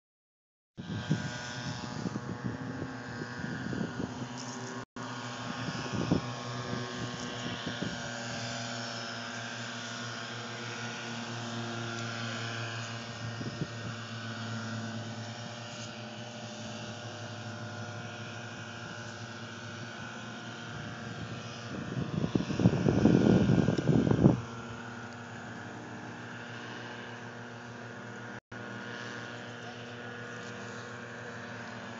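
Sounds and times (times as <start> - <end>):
engine drone: 0.8 - 31.9
loud rumbling on microphone: 20.7 - 25.0.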